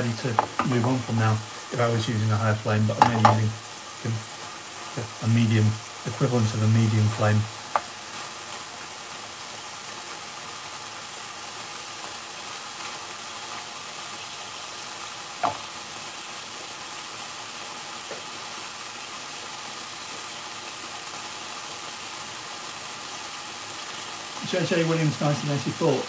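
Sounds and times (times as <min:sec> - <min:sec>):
sauce sizzling in frying pan: 0:00.0 - 0:26.0
sharp knock: 0:15.4 - 0:15.6.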